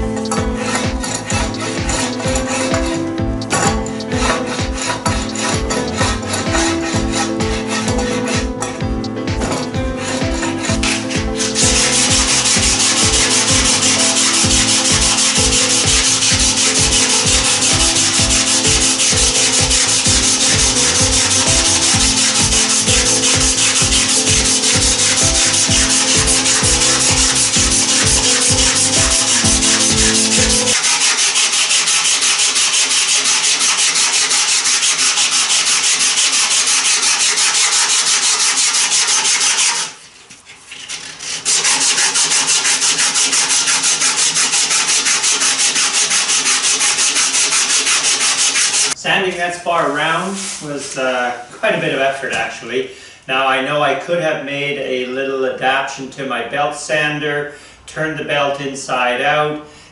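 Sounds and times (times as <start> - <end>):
sandpaper rasping on wood: 0.0 - 49.0, 50.2 - 50.7.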